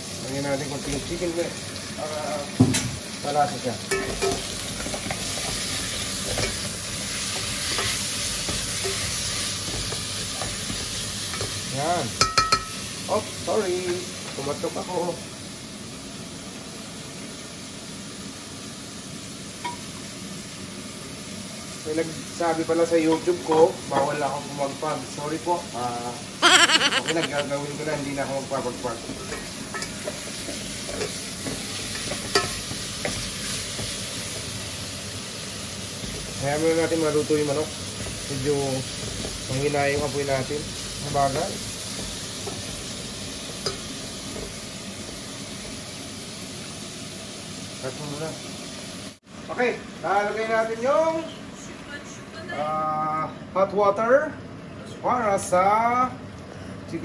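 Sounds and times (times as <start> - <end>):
chicken sizzling in hot oil: 0.0 - 26.2, 27.8 - 51.3
spoon stirring and clinking on pot: 3.9 - 5.5, 12.2 - 12.7.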